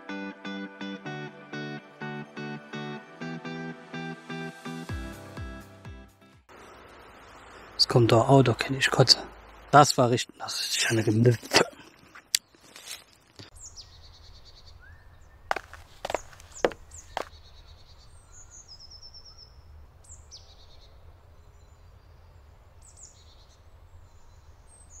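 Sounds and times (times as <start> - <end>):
small birds chirping: 6.5 - 25.0.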